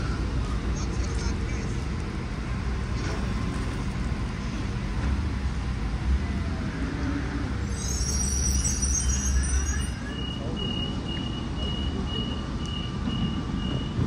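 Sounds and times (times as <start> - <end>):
high-pitched squeal: 7.0 - 11.0.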